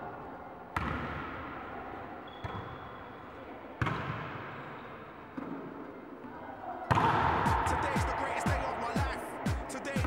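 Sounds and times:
volleyball smacks echoing: 6.9 - 8.8.

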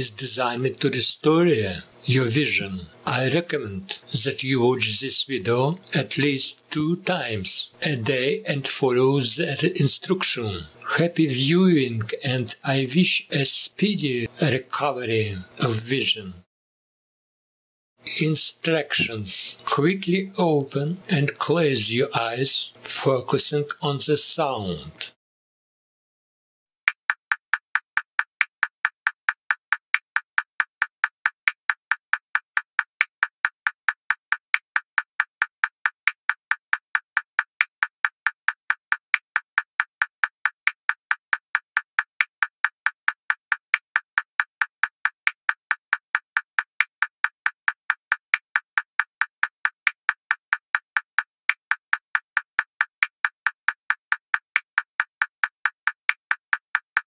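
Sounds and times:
sharp ticking tones: 26.9 - 57.0.

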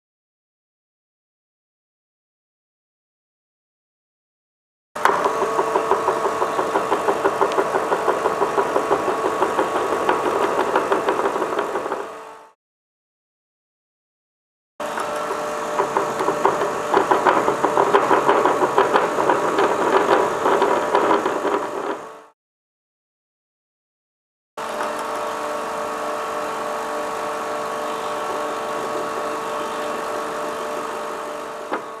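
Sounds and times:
hydraulic pump humming and knocking: 5.0 - 12.6, 14.8 - 22.3, 24.6 - 32.0.

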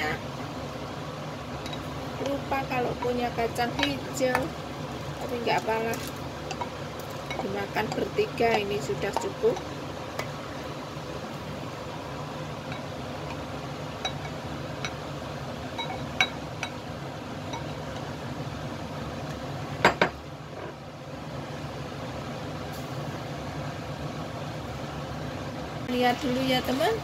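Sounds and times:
gas flame hissing: 0.0 - 27.0.

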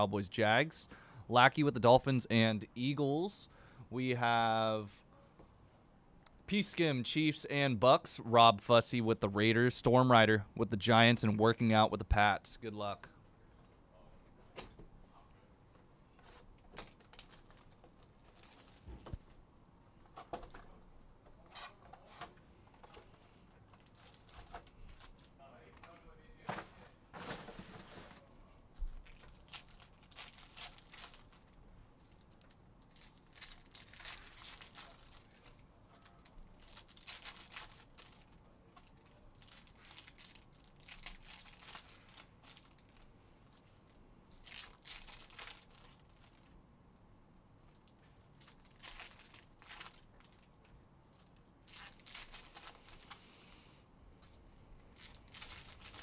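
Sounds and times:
foil wrapper tearing and crinkling: 29.0 - 43.1, 44.4 - 46.6, 47.7 - 50.5, 51.2 - 53.3, 54.8 - 56.0.

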